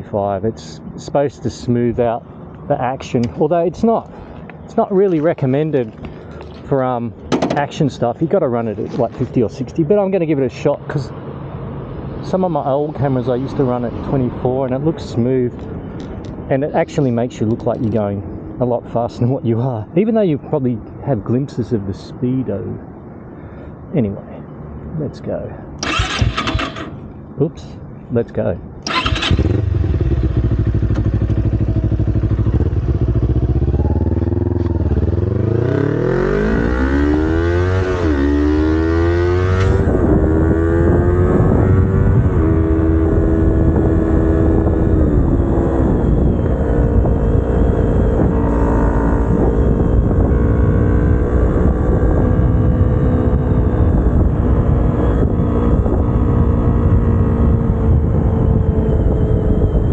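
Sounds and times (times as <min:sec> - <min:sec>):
motorcycle engine idling and revving: 0:25.8 - 0:27.1, 0:28.8 - 0:59.9.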